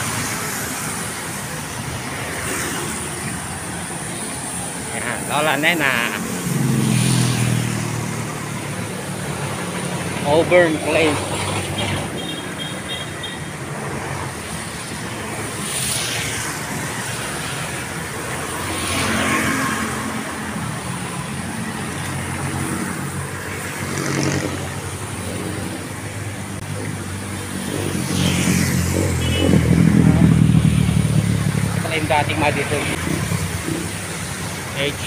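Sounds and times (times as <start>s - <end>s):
traffic on wet road: 0.0s - 35.0s
vehicle engine approaching: 23.8s - 34.2s.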